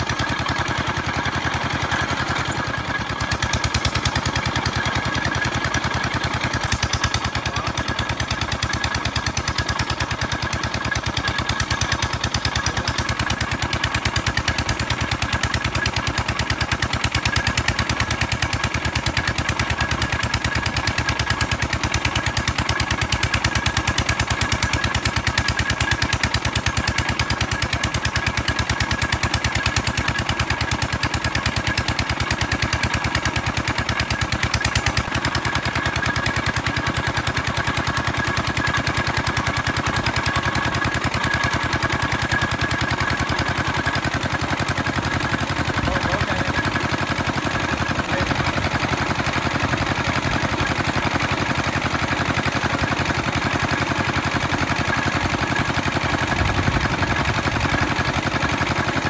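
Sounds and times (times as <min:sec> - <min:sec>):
small engine putt-putting: 0:00.0 - 0:59.0.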